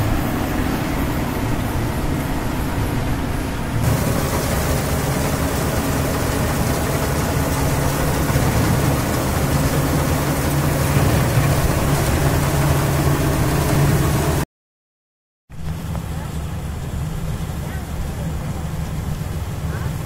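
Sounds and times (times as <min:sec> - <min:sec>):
diesel engine hum: 0:00.0 - 0:14.4, 0:15.5 - 0:20.0
threshing machinery rattle: 0:03.8 - 0:14.4.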